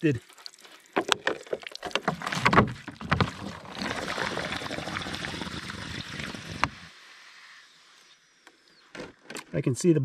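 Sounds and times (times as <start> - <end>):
water pouring onto wet ground: 0.0 - 6.8
plastic jug crackling: 0.0 - 6.9.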